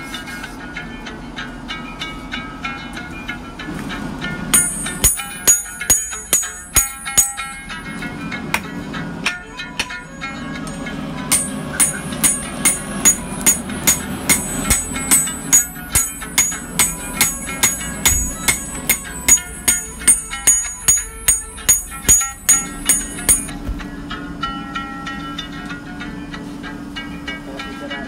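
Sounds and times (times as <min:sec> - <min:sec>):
hammer striking metal on anvil: 0:04.5 - 0:23.6.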